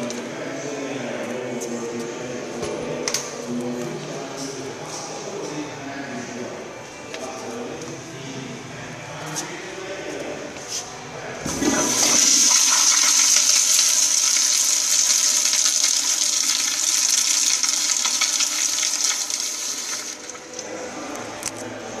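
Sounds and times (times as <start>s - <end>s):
toilet water rushing: 11.4s - 20.6s.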